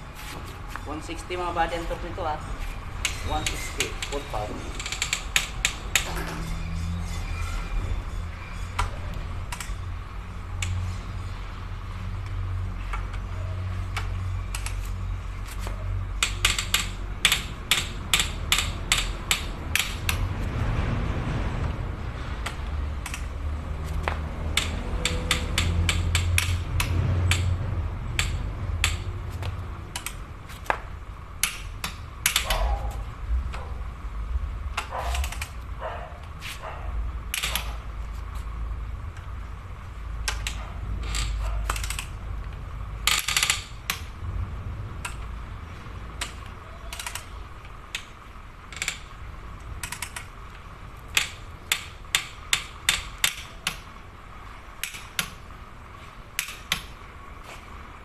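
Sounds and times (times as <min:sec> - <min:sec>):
ratchet clicks: 0:03.0 - 0:06.5, 0:09.5 - 0:09.8, 0:13.9 - 0:20.3, 0:22.4 - 0:30.8, 0:31.4 - 0:32.8, 0:34.8 - 0:35.6, 0:37.3 - 0:37.8, 0:40.2 - 0:44.2, 0:46.1 - 0:54.0, 0:54.8 - 0:55.4, 0:56.4 - 0:57.0
torque wrench clicking: 0:16.2 - 0:20.2, 0:24.0 - 0:30.3, 0:31.4 - 0:32.7, 0:40.2 - 0:42.2, 0:43.0 - 0:44.1, 0:46.2 - 0:48.1, 0:48.7 - 0:50.4, 0:51.1 - 0:53.9, 0:54.8 - 0:55.4, 0:56.4 - 0:56.9.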